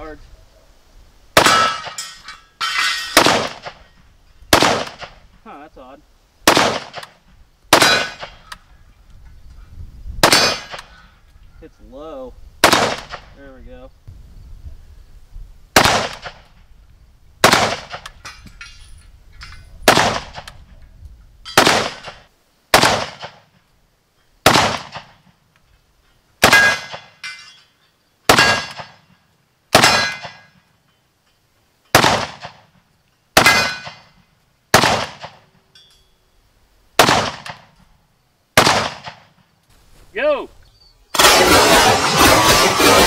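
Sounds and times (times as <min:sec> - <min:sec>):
rifle shots: 0:01.4 - 0:02.0, 0:03.2 - 0:03.8, 0:04.5 - 0:05.2, 0:06.4 - 0:08.5, 0:10.2 - 0:10.9, 0:12.6 - 0:13.3, 0:15.8 - 0:16.5, 0:17.4 - 0:18.2, 0:19.8 - 0:20.6, 0:21.6 - 0:23.5, 0:24.4 - 0:25.2, 0:26.4 - 0:27.2, 0:28.3 - 0:29.0, 0:29.7 - 0:30.5, 0:31.9 - 0:32.7, 0:33.4 - 0:34.1, 0:34.7 - 0:35.5, 0:37.0 - 0:37.7, 0:38.6 - 0:39.4, 0:41.1 - 0:43.0
steel targets ringing: 0:01.4 - 0:03.2, 0:26.5 - 0:29.1, 0:29.8 - 0:31.0, 0:33.4 - 0:34.2.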